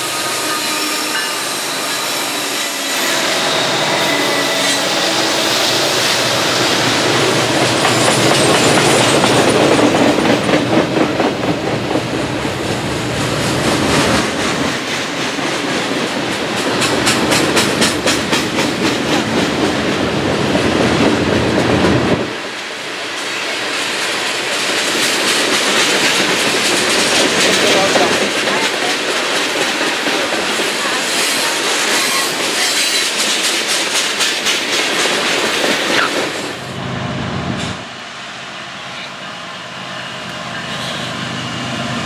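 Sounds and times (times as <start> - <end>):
freight train rumbling past: 0.0 - 42.0
wheels clickety-clack on rail joints: 4.3 - 36.7.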